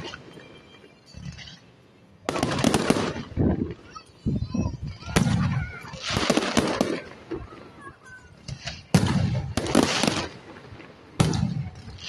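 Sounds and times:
firework crackle: 0.0s - 12.0s
firework shells bursting: 2.2s - 3.8s.

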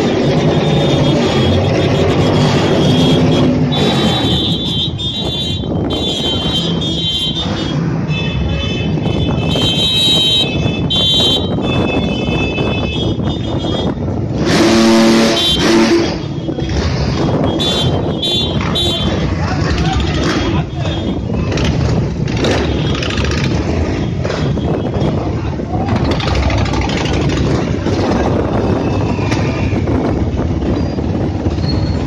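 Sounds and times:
motorcycle engines: 0.0s - 32.0s
high-pitched car horns honking: 0.1s - 16.7s, 17.4s - 19.2s
low horn blast: 14.3s - 16.3s.

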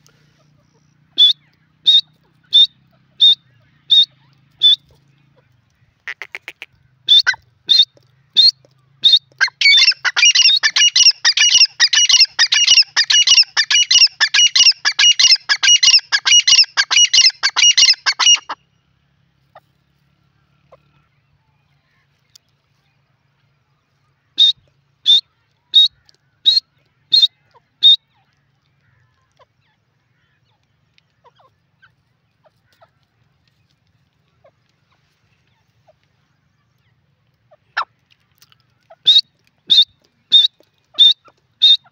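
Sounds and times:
francolin calling: 0.1s - 4.9s, 6.1s - 18.6s.

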